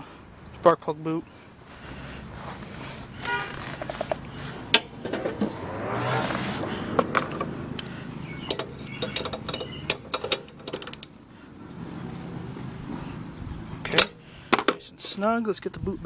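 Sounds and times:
brief rushing noise: 4.9s - 8.4s
metal clicks and clinks: 7.2s - 11.1s, 13.9s - 14.2s
ratchet clicking: 7.2s - 11.1s.

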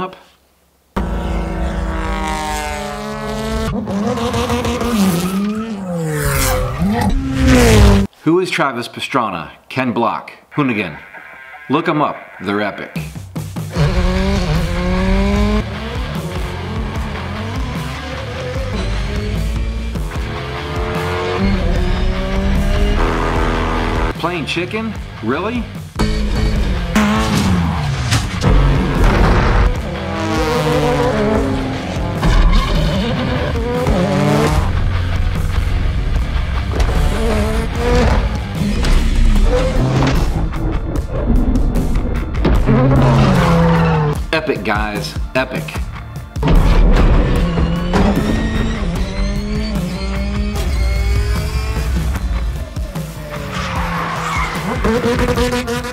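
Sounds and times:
rally car engine revving: 1.0s - 8.1s, 13.6s - 24.2s, 25.9s - 44.3s, 46.4s - 55.9s
background music: 10.6s - 55.9s
tyres skidding: 26.0s - 44.4s, 46.3s - 55.9s.

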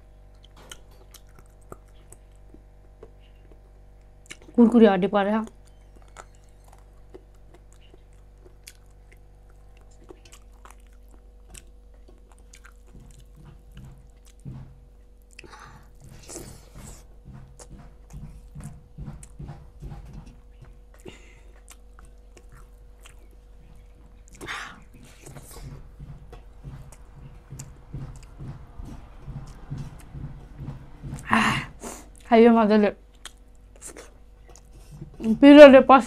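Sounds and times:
close-up chewing: 0.1s - 4.6s, 5.5s - 32.3s, 33.0s - 35.3s
crunching cartilage: 0.2s - 4.6s, 5.5s - 14.6s, 20.5s - 25.7s, 33.1s - 34.7s.

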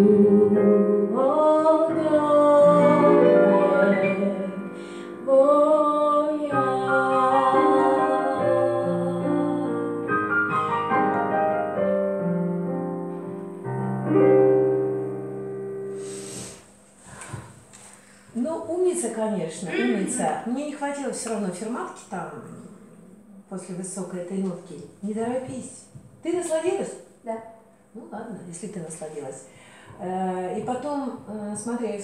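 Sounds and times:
digital piano accompaniment: 0.0s - 5.4s, 6.5s - 16.8s
woman singing a ballad: 0.0s - 10.2s.

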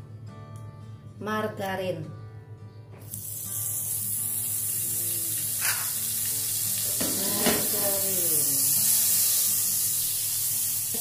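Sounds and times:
margarine sizzling in oil: 3.1s - 11.0s.

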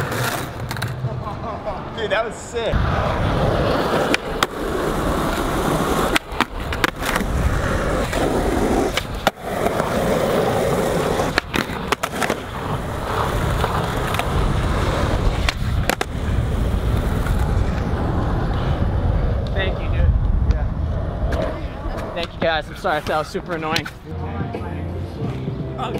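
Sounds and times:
skateboard sharp clicks: 0.0s - 1.0s, 4.0s - 7.4s, 8.0s - 9.9s, 11.0s - 16.2s
skateboard wheels rumbling: 0.0s - 24.1s.

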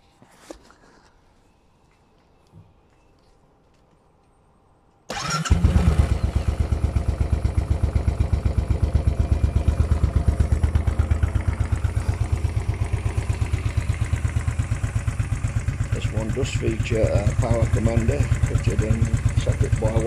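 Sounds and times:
engine cranking: 5.1s - 5.9s
motorcycle engine idling: 5.1s - 20.0s.

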